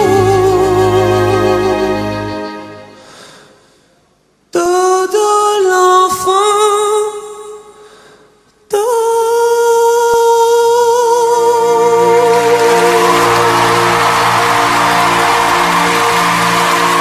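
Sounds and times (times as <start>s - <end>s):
man singing long held notes: 0.0s - 2.6s, 8.7s - 14.4s
soft orchestral accompaniment: 0.0s - 3.1s.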